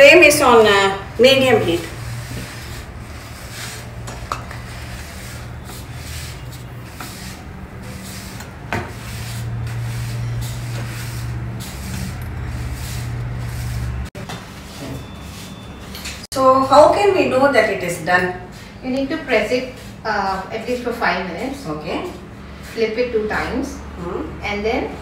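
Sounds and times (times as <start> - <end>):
cloth rubbing on hot griddle: 0.1 - 15.6.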